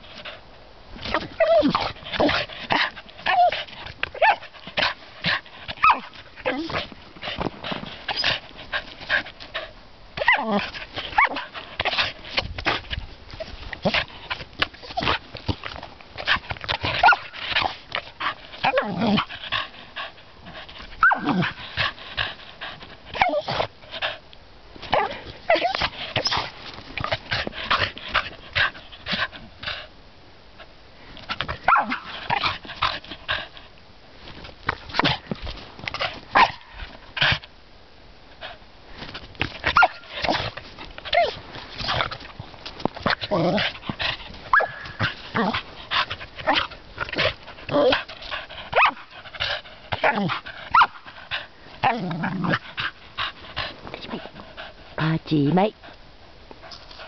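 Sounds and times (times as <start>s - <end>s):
dog whining: 1.1s - 2.3s, 23.2s - 23.6s, 41.1s - 41.4s.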